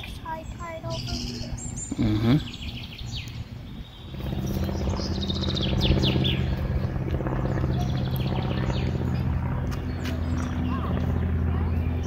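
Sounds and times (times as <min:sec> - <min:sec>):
songbirds chirping: 0:00.0 - 0:12.0
steady motor-like hum: 0:00.0 - 0:12.0.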